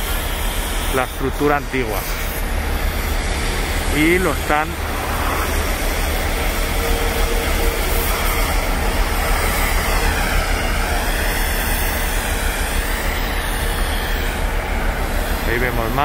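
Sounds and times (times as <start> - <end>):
traffic hum: 1.5 - 13.0
heavy low rumble: 1.6 - 12.2.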